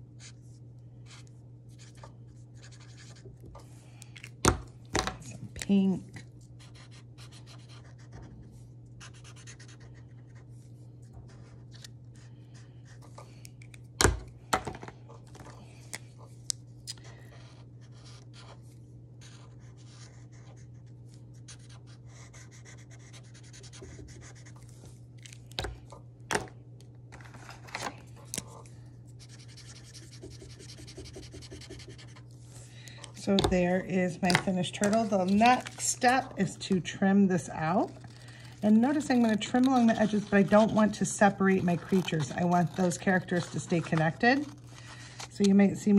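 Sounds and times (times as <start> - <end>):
steady low hum: 0.0 - 45.9
felt-tip markers on paper: 29.2 - 32.2, 38.7 - 44.6.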